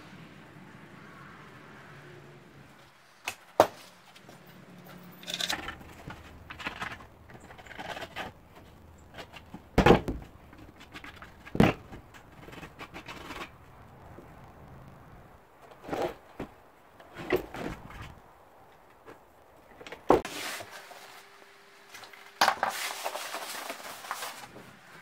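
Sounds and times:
vinyl rustling and scraping: 5.0s - 25.0s.

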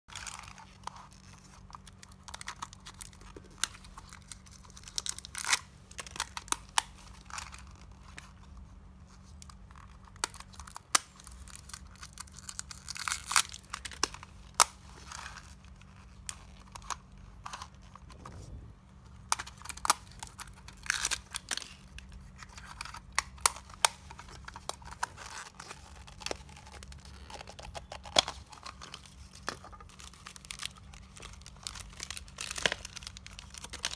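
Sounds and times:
plastic wrapping crinkling: 0.1s - 33.9s.

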